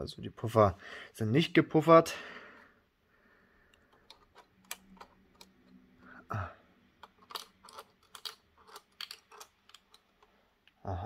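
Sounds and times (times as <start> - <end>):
plastic model clicking and tapping: 3.7 - 5.7, 7.0 - 10.3.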